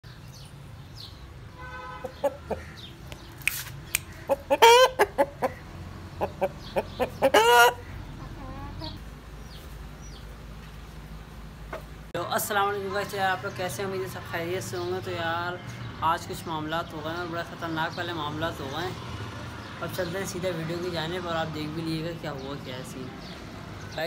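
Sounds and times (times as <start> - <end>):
roosters clucking: 1.9 - 12.1
rooster wavering calls: 4.2 - 9.0.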